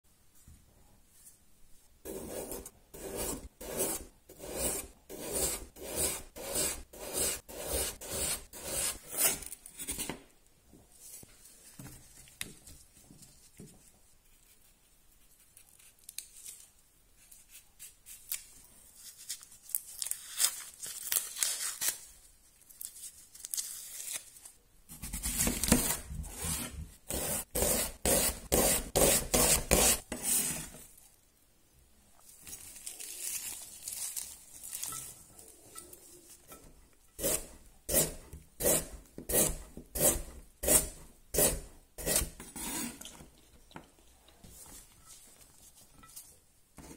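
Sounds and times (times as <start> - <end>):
rustling while peeling onion: 32.2 - 43.2.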